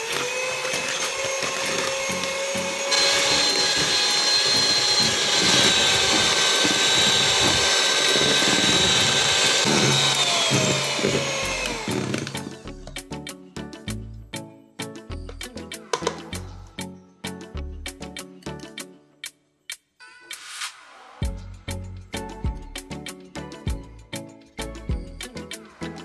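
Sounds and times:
electric hand mixer whirring: 0:00.0 - 0:12.7.

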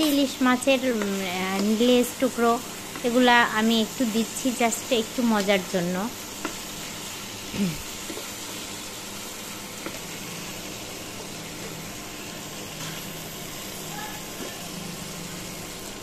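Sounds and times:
food sizzling in frying pan: 0:00.0 - 0:16.0
spatula scraping and tapping: 0:06.4 - 0:06.7, 0:09.8 - 0:10.1.

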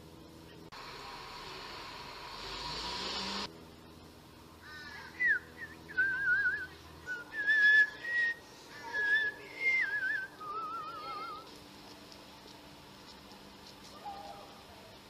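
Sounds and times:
melodic whistling: 0:05.2 - 0:11.5.

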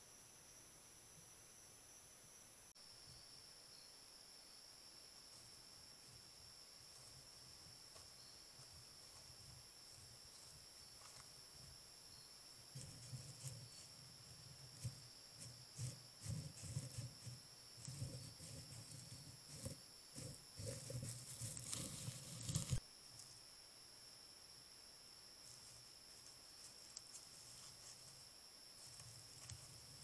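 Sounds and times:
animal rustling against camera: 0:12.6 - 0:22.8, 0:25.4 - 0:30.0.

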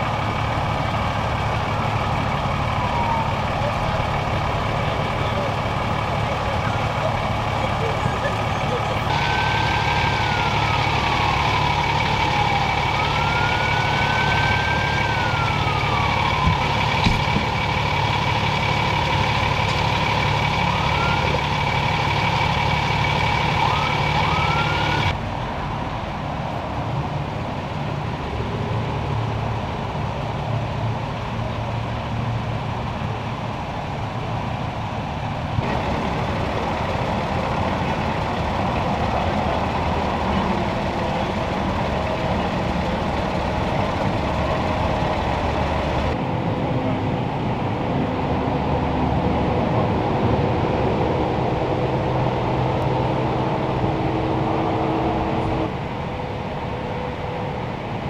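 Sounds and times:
emergency vehicles idling: 0:00.0 - 0:58.0
freeway traffic noise: 0:00.0 - 0:58.0
siren wailing: 0:02.3 - 0:19.4, 0:20.1 - 0:25.2, 0:51.2 - 0:56.4
short siren chirps: 0:08.5 - 0:16.8.

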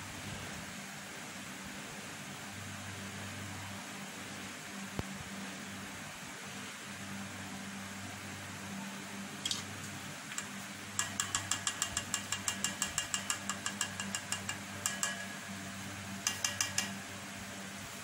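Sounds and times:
metallic clicks against steel bowl: 0:10.4 - 0:15.5, 0:16.2 - 0:17.0.

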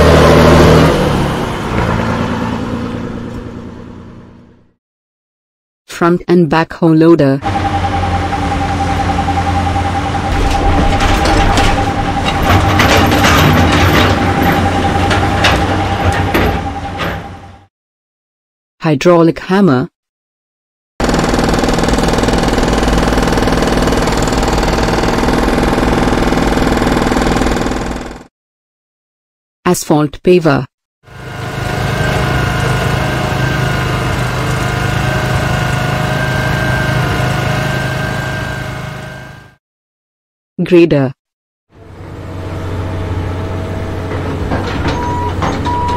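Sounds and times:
constant whine: 0:07.4 - 0:17.6
backhoe diesel engine running: 0:07.4 - 0:17.7, 0:21.0 - 0:28.2, 0:31.1 - 0:39.5, 0:41.8 - 0:45.9
clanks and rattles: 0:10.2 - 0:17.5, 0:43.8 - 0:45.9.

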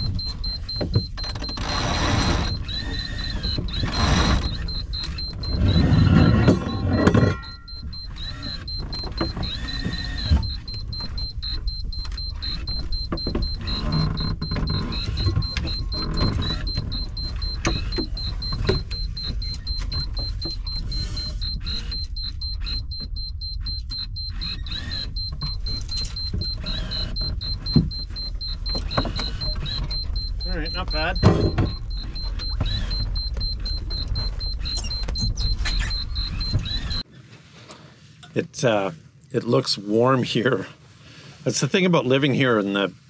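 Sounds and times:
winch ratcheting whir: 0:00.0 - 0:37.0.

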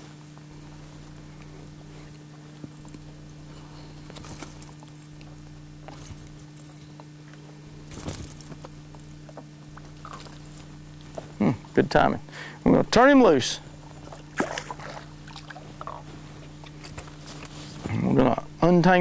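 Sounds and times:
steady low hum: 0:00.0 - 0:19.0
wire arms and lures jingling: 0:07.9 - 0:10.9.

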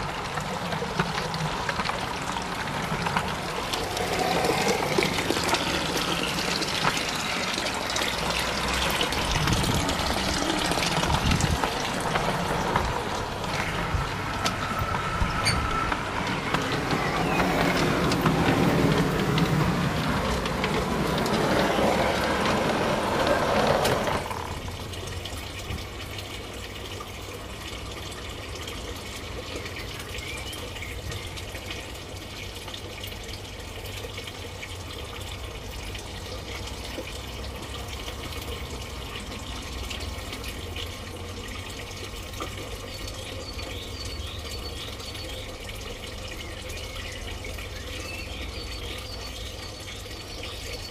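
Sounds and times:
model train rumbling: 0:00.0 - 0:25.0.

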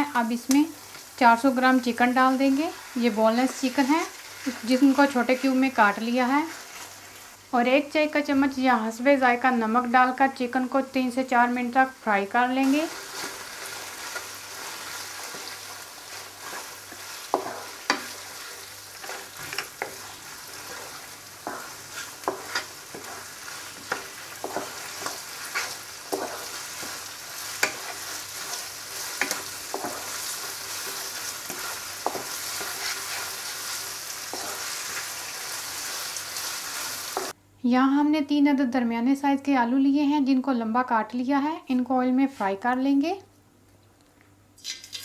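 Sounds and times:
chicken and onion sizzling in oil: 0:00.0 - 0:37.4
wooden spatula scraping wok: 0:01.7 - 0:07.5, 0:12.5 - 0:37.4.

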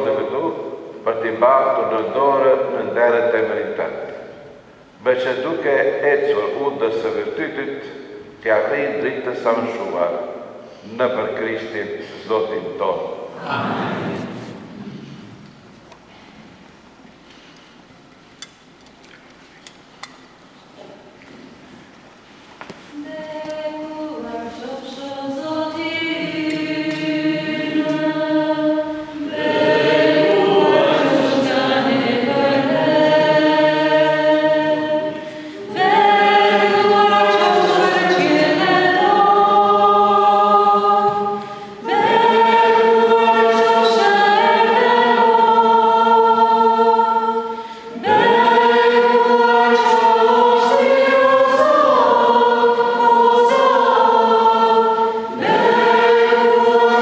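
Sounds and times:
group singing a hymn: 0:00.0 - 0:04.3, 0:11.0 - 0:15.4, 0:22.9 - 0:57.0.

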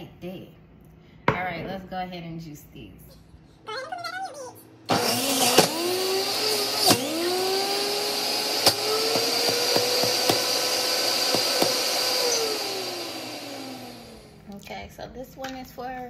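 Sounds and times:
produce knocking in juicer: 0:04.9 - 0:12.8
electric juicer motor running: 0:04.9 - 0:14.4.

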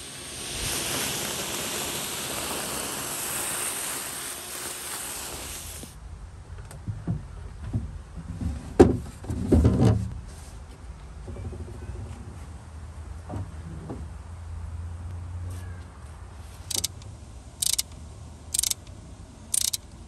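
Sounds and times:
vacuum hissing: 0:00.0 - 0:06.0.

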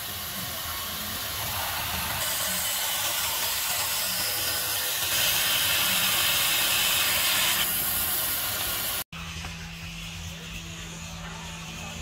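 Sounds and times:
band saw cutting wood: 0:01.3 - 0:09.0.

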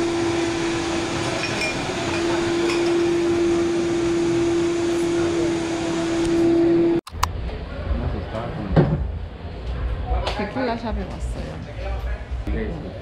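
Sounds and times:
electric motor humming and whirring: 0:00.0 - 0:07.0.

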